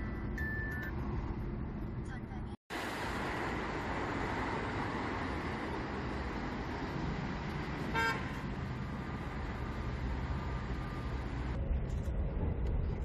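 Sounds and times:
street traffic: 0.0 - 13.0
vehicle horn toot: 7.9 - 8.4.

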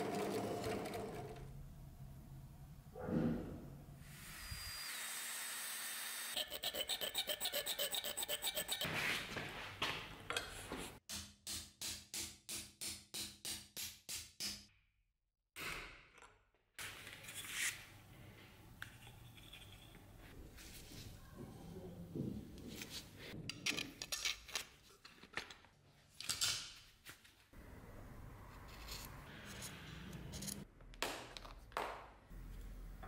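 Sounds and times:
hand file scraping steel: 6.3 - 8.9.

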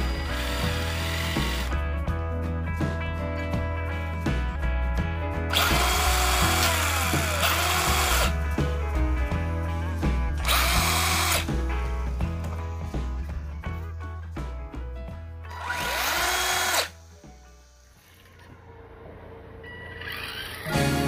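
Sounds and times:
toy car electric motor whirring: 0.0 - 1.7, 5.6 - 8.3, 10.5 - 11.5, 15.5 - 17.0, 20.0 - 20.8.

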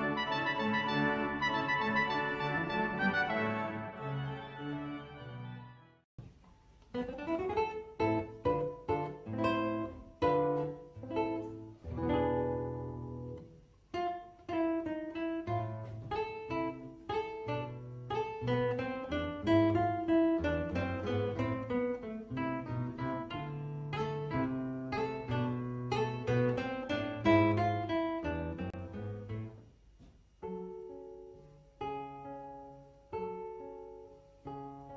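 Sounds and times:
classical guitar duet: 0.0 - 4.2, 6.2 - 34.9.

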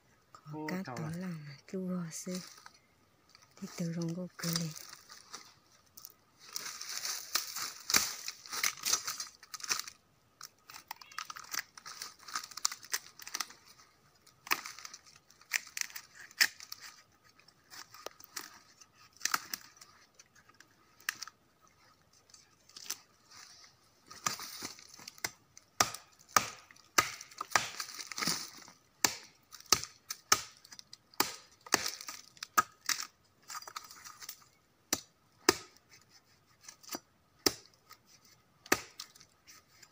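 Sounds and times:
fibres tearing and scraping: 2.3 - 39.9
machete chopping wood: 25.2 - 28.4, 29.0 - 30.6, 31.2 - 33.1, 34.9 - 35.8, 36.9 - 37.8, 38.6 - 39.1.

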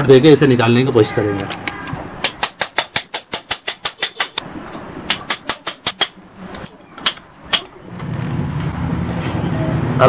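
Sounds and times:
hammer striking metal: 5.1 - 6.2, 7.0 - 7.7.

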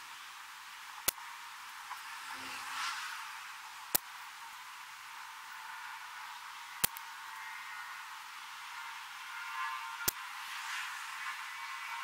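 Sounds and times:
steady hiss: 0.0 - 9.3.

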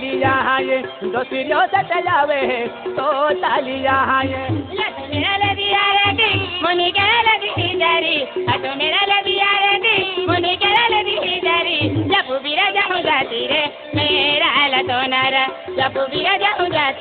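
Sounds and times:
steady drum beat: 0.0 - 12.2.

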